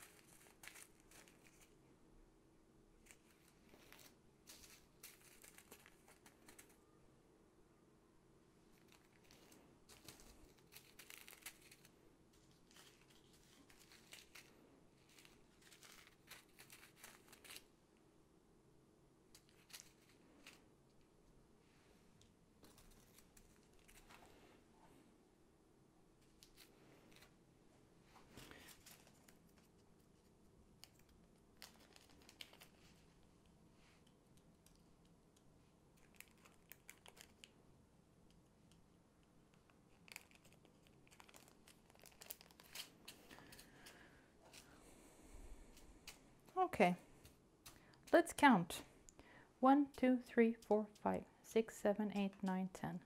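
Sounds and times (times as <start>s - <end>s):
plastic bags crinkling: 0.0s - 1.8s, 3.0s - 6.8s, 8.7s - 17.7s, 36.0s - 37.6s, 39.9s - 44.8s.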